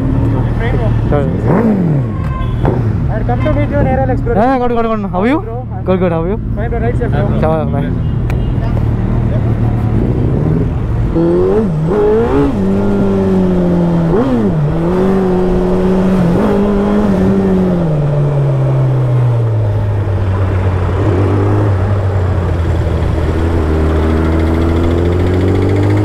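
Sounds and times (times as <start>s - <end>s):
wind and road noise: 0.0s - 26.0s
motorcycle engine running: 19.4s - 26.0s.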